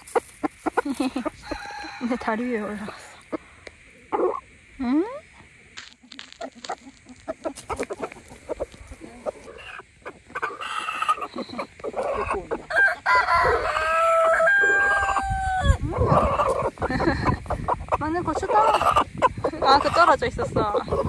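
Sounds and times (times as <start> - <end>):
chickens clucking: 0.0 - 21.0
rooster crowing: 1.4 - 2.8, 12.2 - 16.5.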